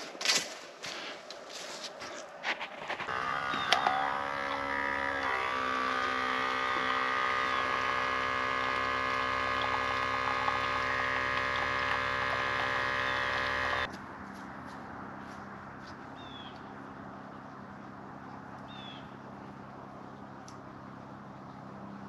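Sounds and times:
espresso maker pump humming: 0:02.9 - 0:13.9.

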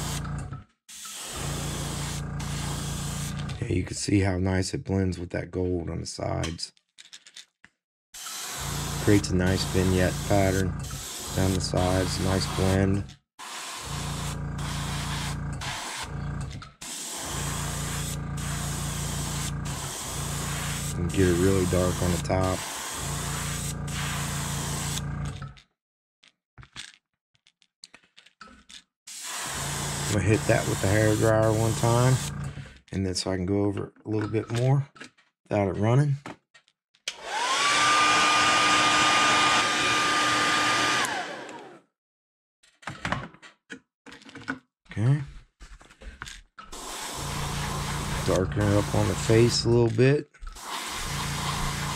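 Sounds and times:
airbrush hissing: 0:00.0 - 0:00.2, 0:00.9 - 0:03.4, 0:08.2 - 0:12.8, 0:13.4 - 0:16.1, 0:16.8 - 0:25.0, 0:29.1 - 0:32.3, 0:46.8 - 0:49.6, 0:50.6 - 0:51.9
hair dryer running: 0:08.2 - 0:12.8, 0:37.1 - 0:41.8, 0:46.8 - 0:49.6, 0:50.6 - 0:51.9.

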